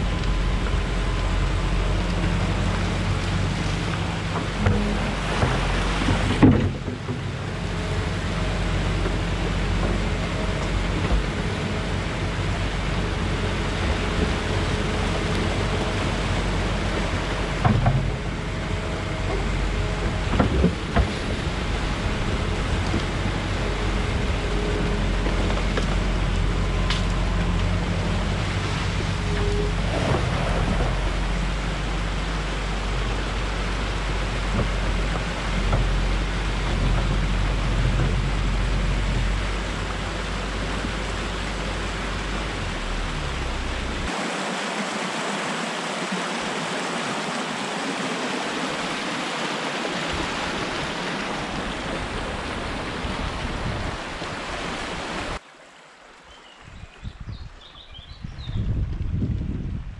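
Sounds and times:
excavator diesel engine running: 0.0s - 44.1s
water rushing through a dam: 0.0s - 56.4s
excavator bucket knocks: 4.5s - 7.3s.

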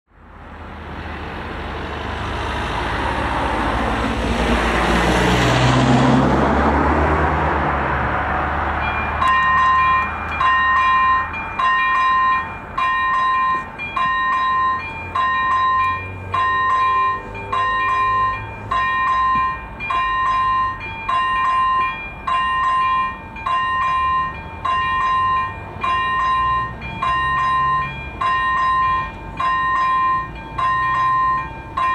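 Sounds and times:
vehicle passing by: 0.2s - 20.6s, 23.8s - 31.8s
level crossing warning bell: 8.7s - 31.9s.

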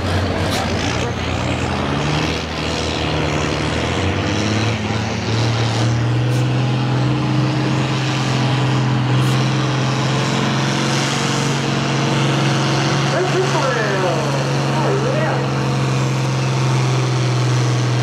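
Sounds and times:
tractor diesel engine under load: 0.0s - 18.0s.

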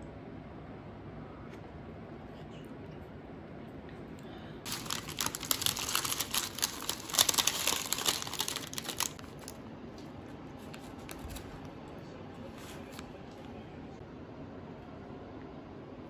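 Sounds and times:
paper packaging crinkling: 4.7s - 9.6s, 10.6s - 11.7s.

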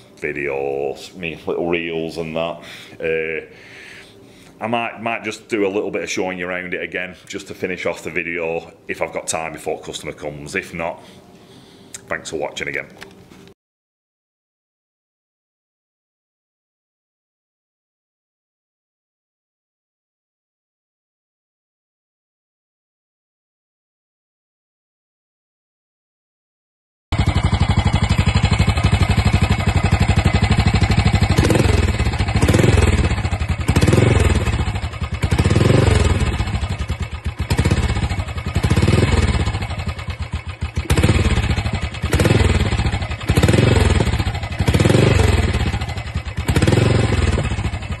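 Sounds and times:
motorcycle engine idling and revving: 27.1s - 48.0s.

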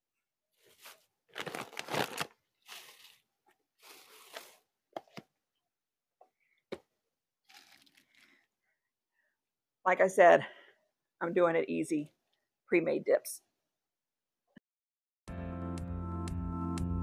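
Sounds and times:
plastic bags rustling: 0.6s - 4.7s, 7.4s - 8.4s.

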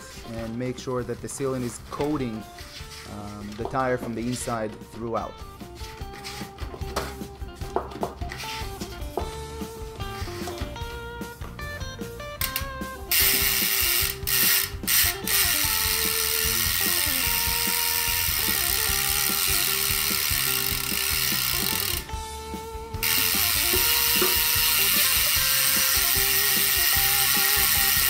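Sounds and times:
bicycle hub clicking buzz: 12.4s - 22.2s, 23.0s - 28.0s.

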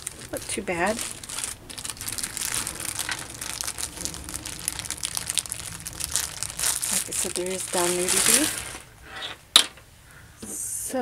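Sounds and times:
plastic wrapping crinkling: 0.0s - 9.1s.

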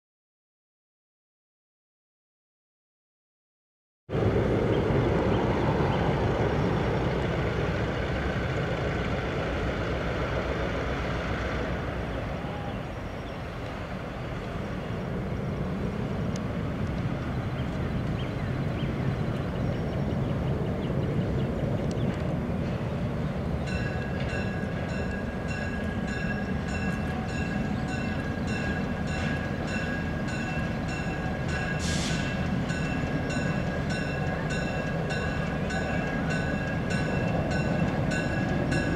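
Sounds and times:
diesel locomotive engine running: 4.1s - 38.9s.

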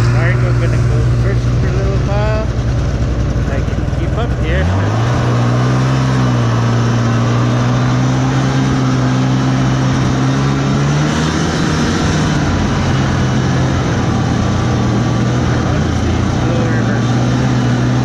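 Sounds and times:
snowmobile engine running: 0.0s - 18.0s.

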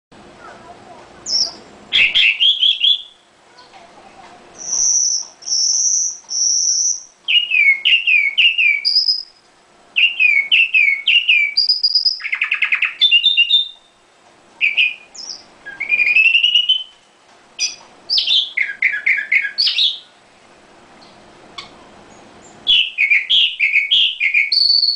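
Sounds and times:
bird singing whistled phrases: 1.2s - 3.2s, 4.6s - 9.4s, 10.0s - 14.0s, 14.6s - 17.0s, 17.6s - 20.1s, 22.6s - 24.9s.

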